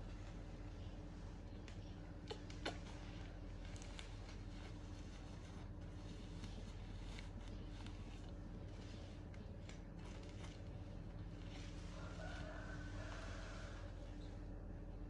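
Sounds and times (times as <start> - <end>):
cloth rubbing: 2.4 - 14.4.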